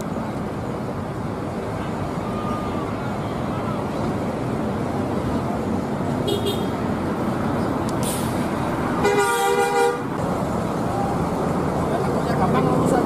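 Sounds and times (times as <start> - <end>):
buses passing on road: 0.0 - 13.0
bus horn: 6.2 - 6.8, 9.0 - 10.1.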